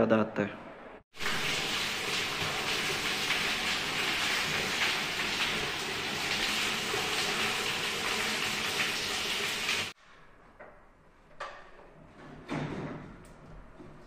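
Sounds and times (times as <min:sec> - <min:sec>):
water splashing onto tiled floor: 0:01.1 - 0:10.0.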